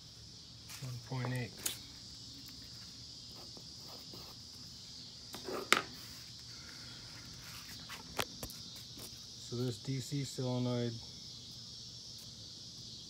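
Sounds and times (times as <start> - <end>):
steady high hiss: 0.0 - 13.0
pencil scratching on paper: 3.3 - 4.4.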